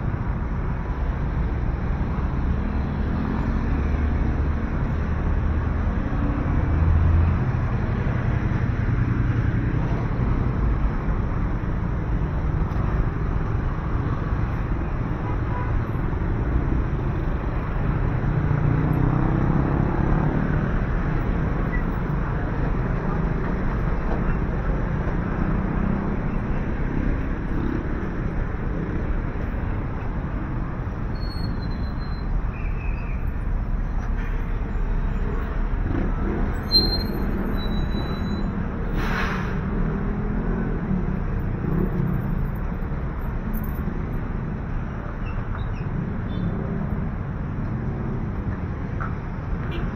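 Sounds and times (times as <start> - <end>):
passing road traffic: 0.0 - 49.9.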